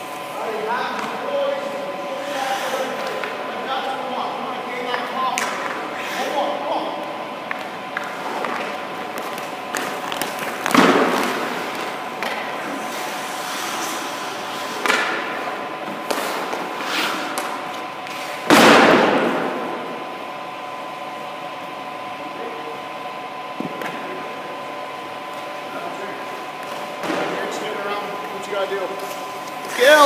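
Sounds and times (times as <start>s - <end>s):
skates scraping ice: 2.2s - 3.4s, 8.0s - 18.4s
skate clicks: 7.5s - 13.1s
goalie pads dropping onto ice: 8.4s - 12.4s.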